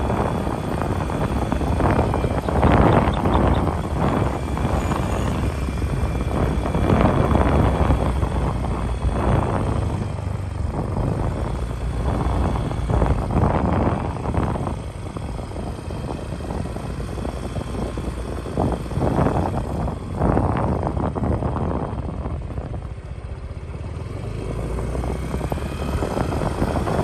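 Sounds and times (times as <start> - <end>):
heavy low rumble: 0.0 - 23.8
wind buffeting microphone: 0.0 - 27.0.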